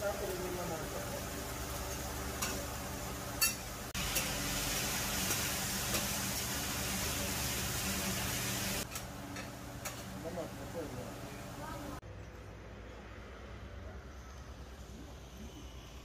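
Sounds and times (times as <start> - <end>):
meat frying on a griddle: 0.0 - 9.0
liquid hissing on hot iron: 3.9 - 8.9.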